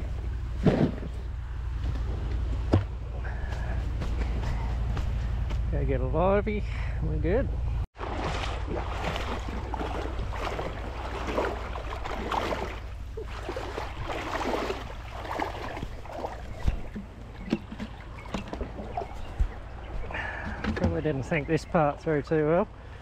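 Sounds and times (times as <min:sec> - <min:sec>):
steady low rumble: 0:00.0 - 0:07.9, 0:08.5 - 0:23.0
water sloshing and splashing: 0:08.0 - 0:21.7.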